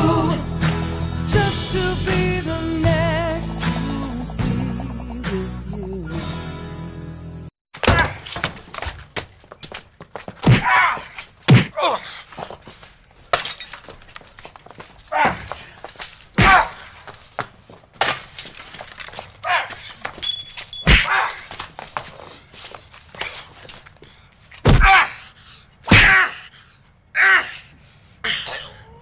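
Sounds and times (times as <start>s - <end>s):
background music: 0.0s - 7.5s
knocks and thuds: 24.6s - 24.9s.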